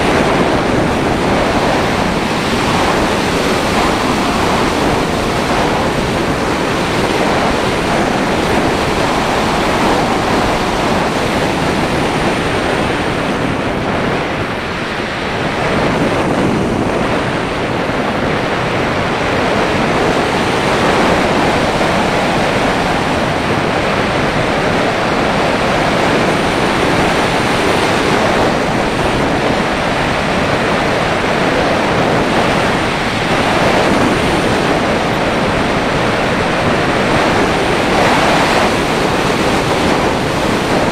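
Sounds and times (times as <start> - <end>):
wind hiss on microphone: 0.0 - 40.9.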